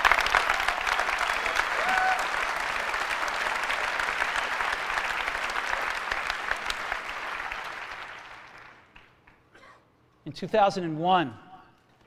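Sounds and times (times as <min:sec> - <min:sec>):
large audience applauding: 0:00.0 - 0:09.4.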